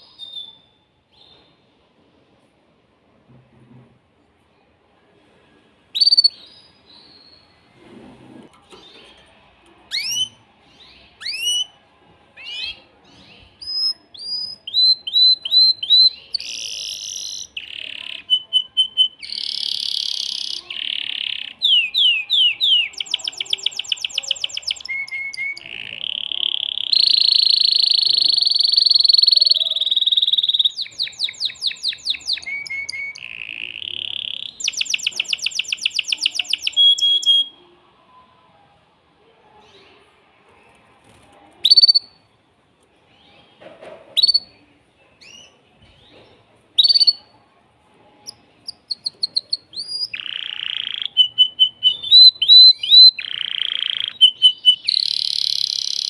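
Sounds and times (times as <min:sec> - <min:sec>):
canary singing: 0:05.9 - 0:07.7, 0:08.5 - 0:11.8, 0:12.4 - 0:37.6, 0:41.6 - 0:42.3, 0:44.2 - 0:44.6, 0:46.8 - 0:47.4, 0:48.2 - 0:56.0.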